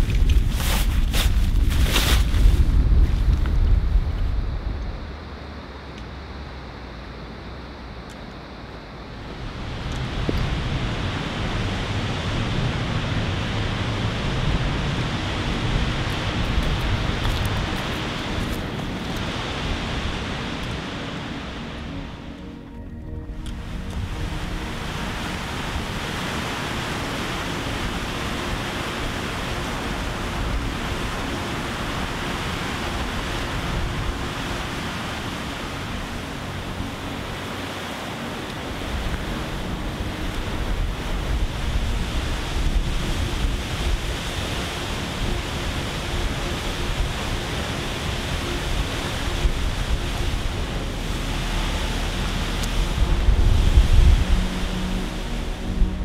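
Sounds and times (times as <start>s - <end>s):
wind buffeting microphone: 0.0s - 5.2s, 23.2s - 56.0s
rushing white water: 0.0s - 56.0s.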